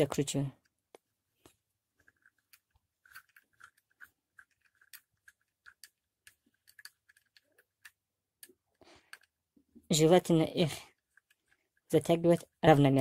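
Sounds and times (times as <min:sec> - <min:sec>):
hex key clicking and scraping: 0:02.0 - 0:09.5, 0:10.9 - 0:12.4.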